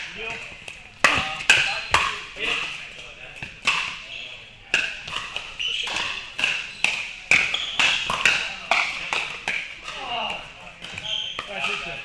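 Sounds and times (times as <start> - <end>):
paddles striking plastic balls: 4.7 - 12.0.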